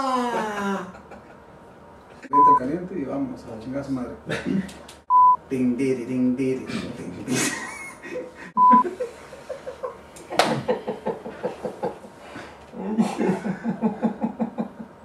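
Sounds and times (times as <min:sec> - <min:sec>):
men laughing: 0:00.0 - 0:02.3, 0:04.2 - 0:04.8, 0:07.3 - 0:15.0
censor bleep: 0:02.3 - 0:02.6, 0:05.1 - 0:05.4, 0:08.6 - 0:08.8.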